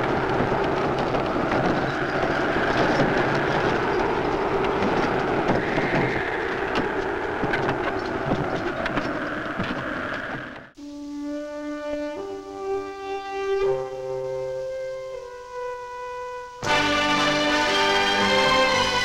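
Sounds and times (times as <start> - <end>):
wagon wheels rumbling: 0.0 - 10.8, 16.6 - 19.0.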